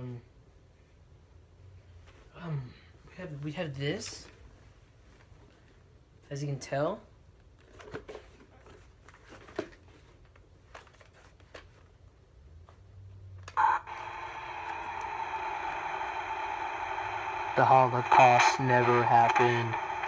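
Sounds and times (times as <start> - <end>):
voice changer static hiss and hum: 13.5 - 20.0.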